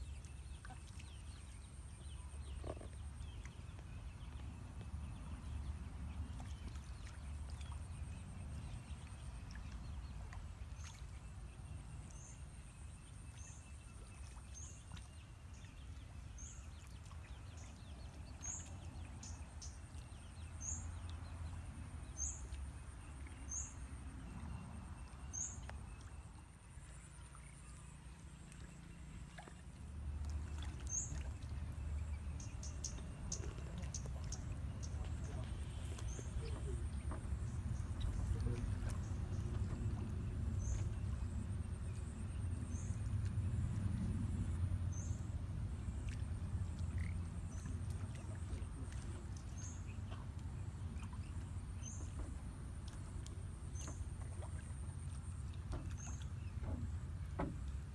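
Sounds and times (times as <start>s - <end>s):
low rumble: 29.6s - 54.8s.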